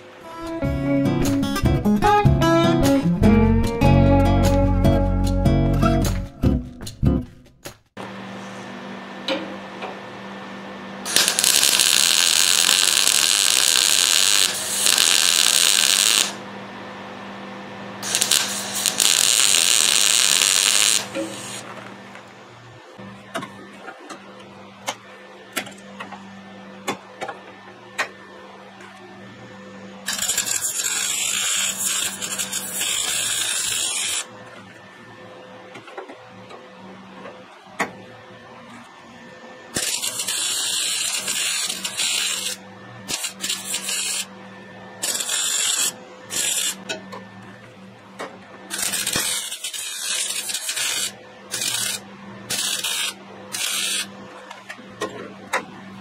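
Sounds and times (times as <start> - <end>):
welding arc crackling: 11.1 - 16.4, 18.0 - 21.7, 30.1 - 34.3, 39.8 - 44.3, 45.0 - 46.8, 48.7 - 54.1.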